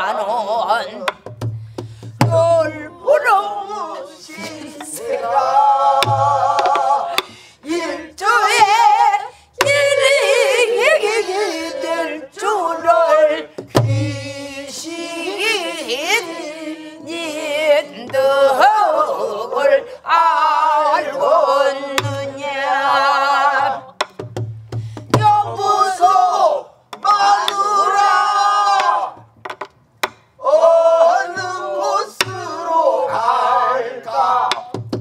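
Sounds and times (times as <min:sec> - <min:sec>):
barrel drum thumps: 0:01.1 - 0:02.6, 0:06.0 - 0:07.4, 0:13.6 - 0:14.2, 0:24.0 - 0:25.5, 0:34.5 - 0:35.0
group singing along: 0:02.2 - 0:24.2, 0:25.1 - 0:29.3, 0:30.4 - 0:35.0.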